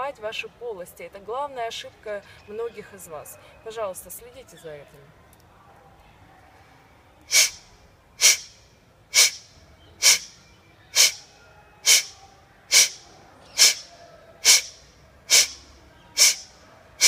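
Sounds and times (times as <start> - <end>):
woman forceful nasal exhalations: 7.3 - 7.6, 8.2 - 8.5, 9.1 - 9.4, 10.0 - 10.3, 11.0 - 11.2, 11.9 - 12.1, 12.7 - 13.0, 13.6 - 13.8, 14.4 - 14.7, 15.3 - 15.6, 16.2 - 16.5.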